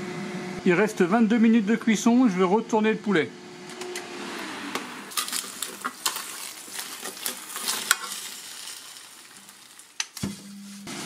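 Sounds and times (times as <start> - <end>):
chicken and potatoes sizzling: 5.1 - 11.0
fork scraping and clicking on pan: 5.2 - 8.3.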